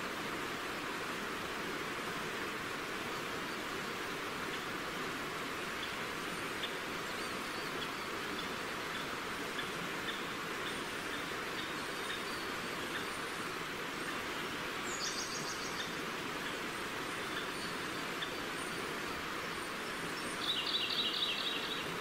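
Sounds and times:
river water flowing: 0.0 - 22.0
small birds singing: 5.7 - 22.0.

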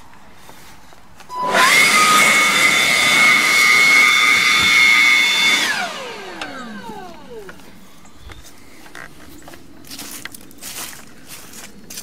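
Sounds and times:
electric blower motor whining: 1.3 - 7.8.

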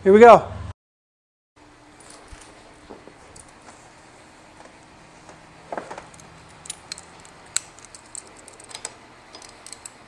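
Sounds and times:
socket ratchet clicking: 6.0 - 10.0.

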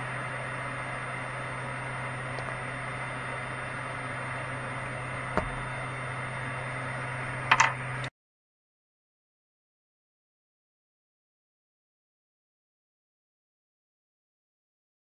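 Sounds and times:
cooling fans humming: 0.0 - 8.1.

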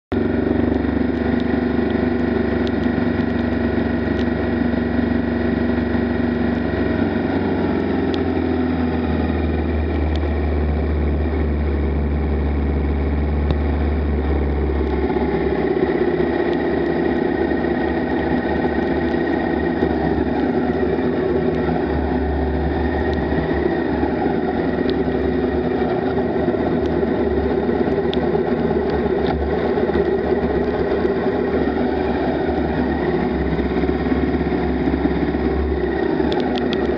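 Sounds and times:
motorcycle engine running: 0.0 - 36.9
light ticks: 36.2 - 36.9.

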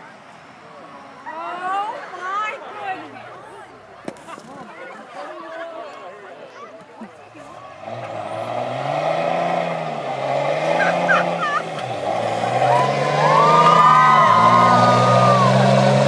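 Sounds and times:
pickup truck engine accelerating: 7.6 - 16.0.

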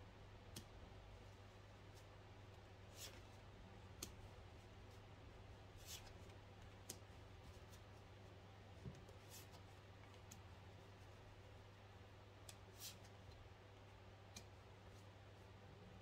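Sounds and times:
low steady hum: 0.0 - 16.0
cards swishing on a table: 2.9 - 3.4, 5.7 - 8.2, 8.8 - 11.0, 12.5 - 13.2.

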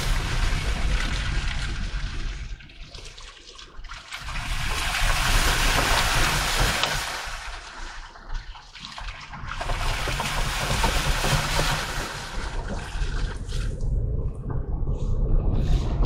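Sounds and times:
low engine rumble: 11.8 - 16.0.

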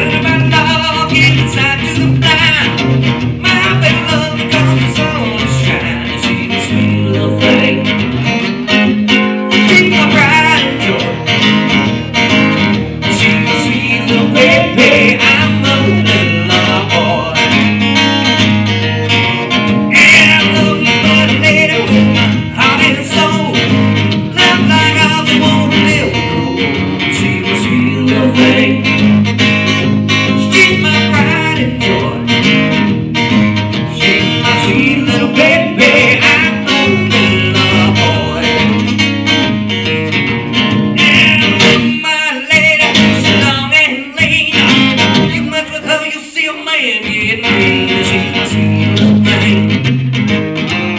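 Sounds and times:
man singing: 0.0 - 8.2, 9.5 - 11.6, 13.0 - 17.8, 19.9 - 29.1, 30.3 - 32.5, 33.8 - 38.9, 41.0 - 49.9
acoustic guitar: 0.0 - 50.9.

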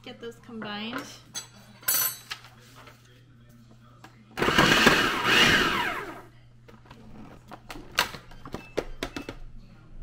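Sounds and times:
food processor motor whirring: 4.4 - 6.3.

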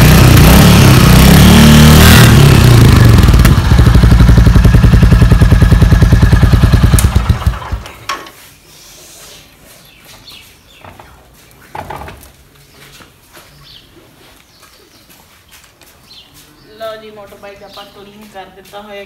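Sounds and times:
motorcycle engine thumping: 2.1 - 8.4.

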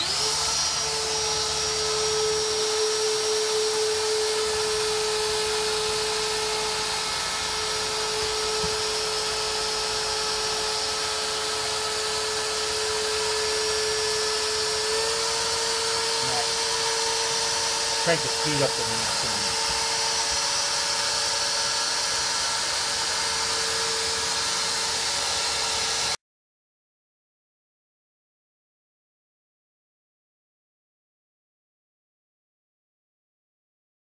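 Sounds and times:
router spindle whining: 0.0 - 26.2.

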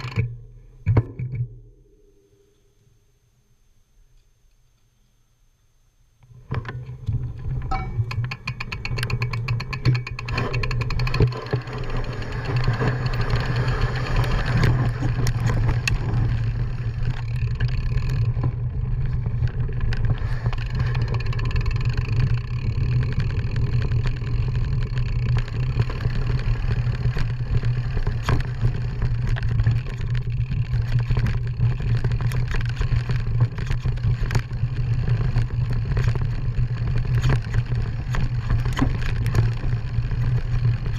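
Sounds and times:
bike rattling and clicking: 0.0 - 1.5, 6.3 - 40.9
wind rumble on microphone: 9.8 - 40.9.

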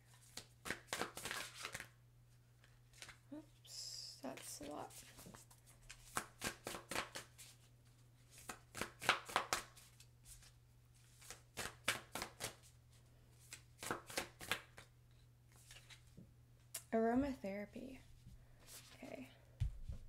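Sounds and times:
cards being shuffled: 0.1 - 1.9, 2.6 - 3.2, 4.3 - 12.7, 13.3 - 14.9, 15.5 - 16.1.

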